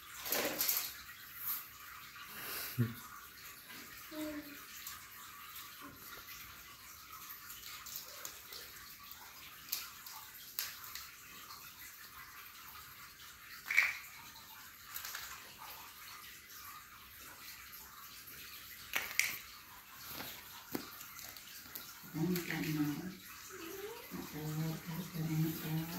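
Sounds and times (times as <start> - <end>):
plastic bricks knocking on tiles: 18.9 - 19.4.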